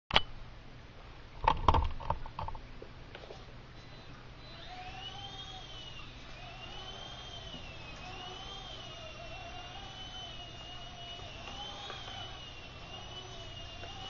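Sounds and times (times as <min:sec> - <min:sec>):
sharp clicks and knocks: 0:01.4 - 0:02.6
helicopter electric motors whining: 0:03.8 - 0:14.0.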